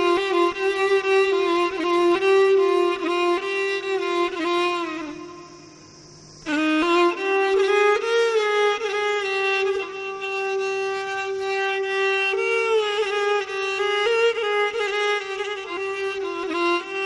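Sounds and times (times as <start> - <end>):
solo violin melody: 0.0 - 17.0.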